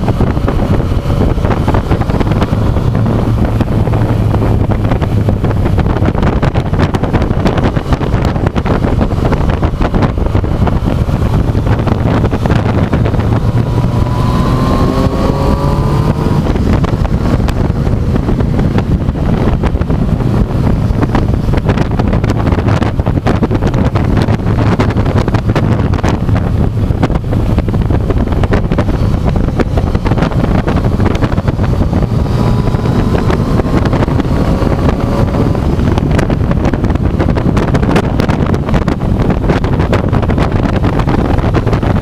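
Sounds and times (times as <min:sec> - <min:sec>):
motorcycle engine running: 0:00.0 - 0:42.0
wind buffeting microphone: 0:00.0 - 0:42.0.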